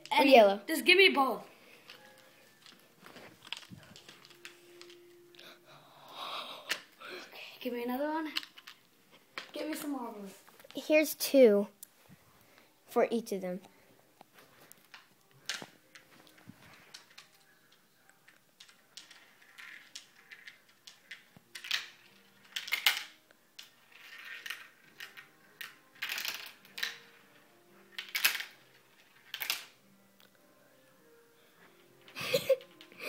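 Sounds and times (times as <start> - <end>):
marbles rolling down plastic track: 18.6 - 27.4, 28.0 - 29.8.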